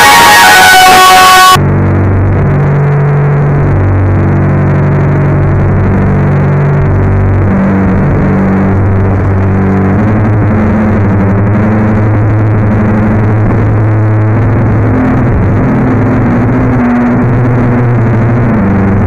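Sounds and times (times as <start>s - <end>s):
loud distorted band music: 0.0s - 1.6s
low droning tone: 0.0s - 19.0s.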